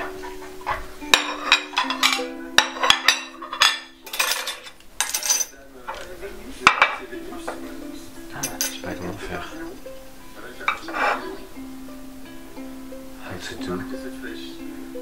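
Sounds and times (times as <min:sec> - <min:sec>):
dishes clinking on marble: 0:00.2 - 0:06.1, 0:06.7 - 0:07.1, 0:08.4 - 0:09.2
low held music notes: 0:06.1 - 0:15.0.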